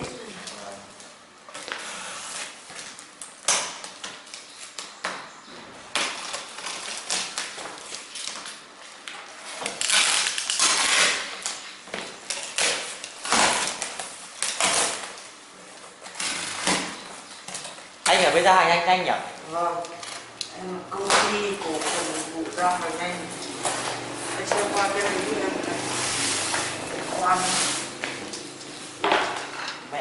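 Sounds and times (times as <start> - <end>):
tape and cardboard tearing: 5.9 - 15.3, 16.0 - 18.2, 20.9 - 29.5
box cutter slitting tape: 9.5 - 11.6, 12.3 - 15.2.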